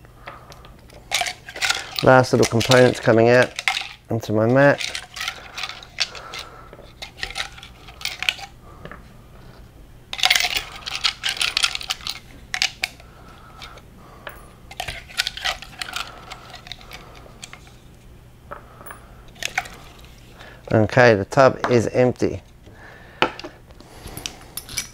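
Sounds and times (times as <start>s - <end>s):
small metal parts clinking: 0.7s - 8.6s, 10.1s - 17.8s, 18.8s - 20.5s, 24.1s - 24.9s.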